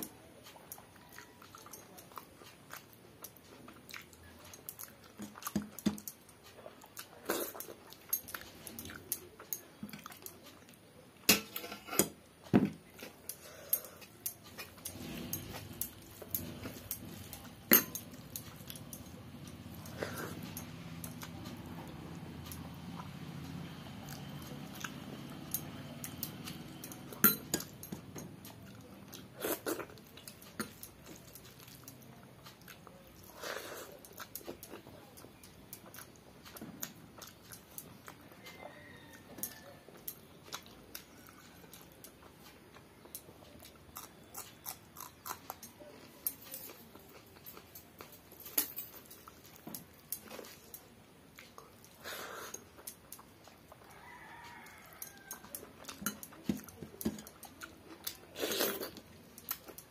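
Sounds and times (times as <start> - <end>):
person chewing food: 0.0 - 59.9.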